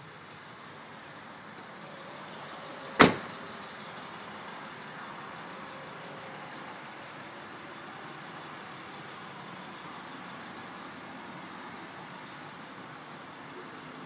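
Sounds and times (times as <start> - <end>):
car door shutting: 3.0 - 3.4.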